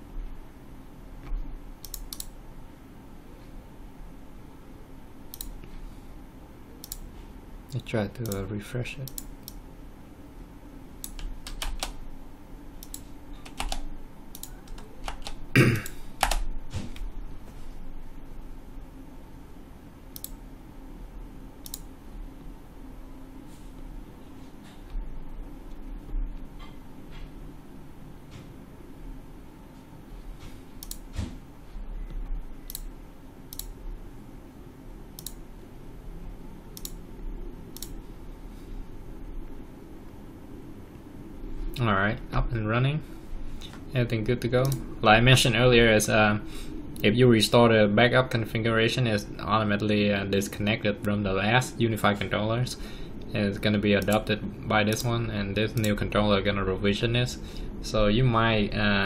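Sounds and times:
low steady hum: 0.0 - 59.0
computer keyboard keys clicking: 1.8 - 2.3, 11.0 - 12.0, 12.8 - 15.4, 16.2 - 16.4, 30.8 - 31.0.

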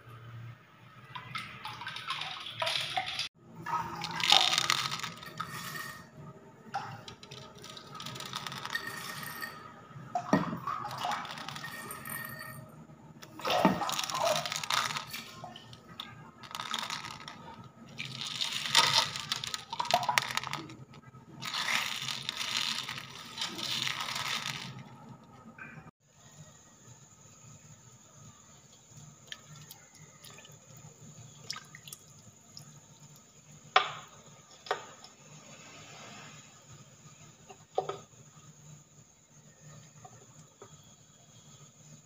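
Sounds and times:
gravel clattering against glass: 13.6 - 25.0.

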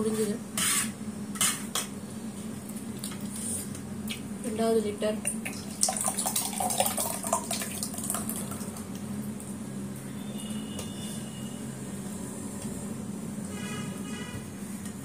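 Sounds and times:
liquid pouring into steel cup: 5.3 - 8.8.

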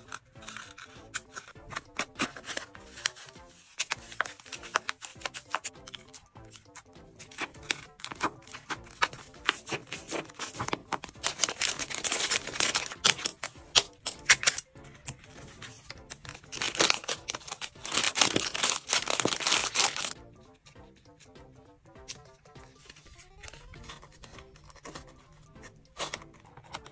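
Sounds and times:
plastic wrap crinkling: 0.0 - 6.2, 7.2 - 14.6, 16.0 - 20.2
background music: 0.0 - 26.9
scissors snipping: 3.8 - 15.2.

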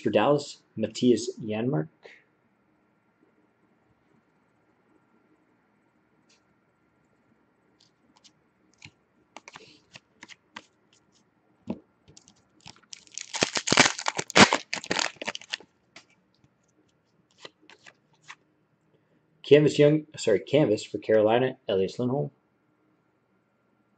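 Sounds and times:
trading cards tapping: 8.8 - 10.7
foil wrapper tearing and crinkling: 9.4 - 10.4, 12.2 - 16.1.

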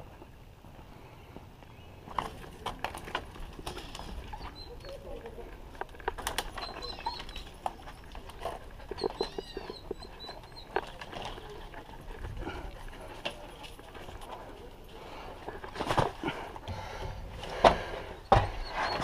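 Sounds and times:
high-pitched animal calls: 4.0 - 5.6, 6.4 - 12.6.

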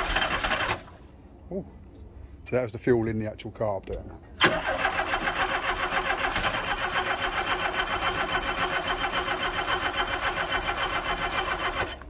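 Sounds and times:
engine cranking on starter: 0.0 - 1.0, 4.4 - 12.0.

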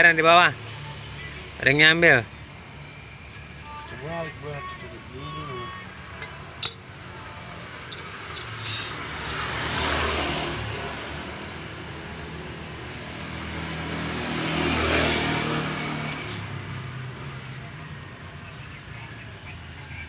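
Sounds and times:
vehicle engine passing: 6.2 - 18.1.

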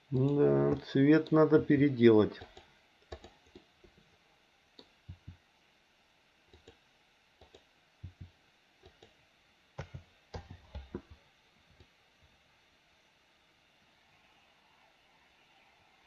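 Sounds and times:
keyboard keys clicking: 2.4 - 3.6
mouse buttons clicking: 6.5 - 6.8, 7.4 - 9.2.

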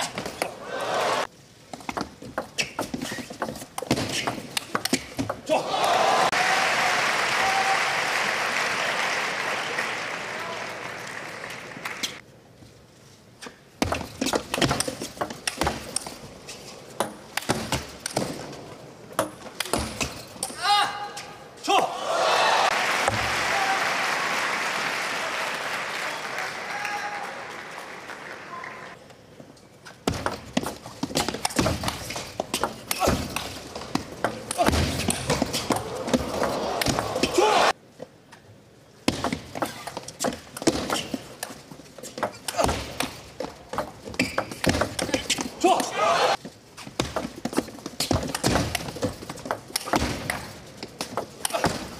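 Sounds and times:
crowd applause: 0.6 - 1.3, 5.6 - 12.2, 22.0 - 29.0, 35.8 - 37.7
shoes squeaking on floor: 1.8 - 5.4, 39.6 - 42.6, 43.2 - 49.3.

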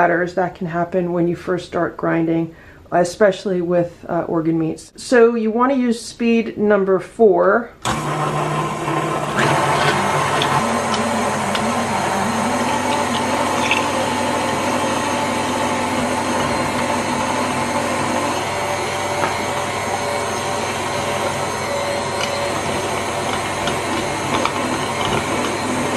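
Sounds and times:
stand mixer motor hum: 7.8 - 25.9.

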